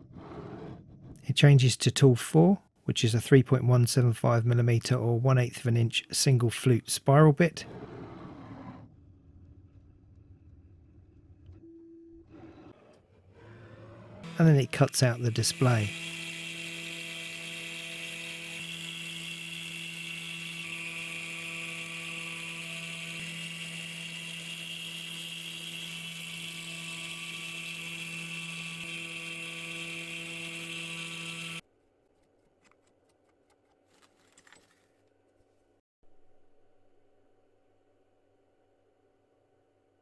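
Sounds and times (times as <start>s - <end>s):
cnc spindle whining: 14.2s - 31.6s.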